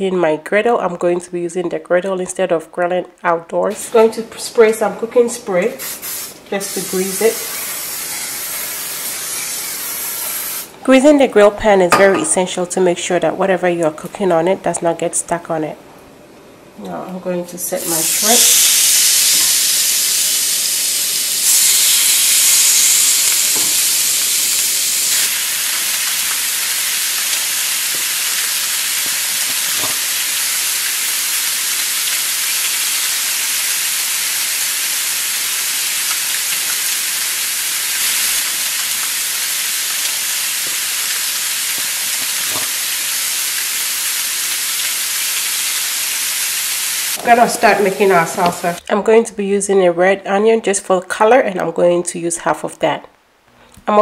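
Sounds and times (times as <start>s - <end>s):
shrimp sizzling on a griddle: 5.8s - 10.7s, 17.8s - 47.2s.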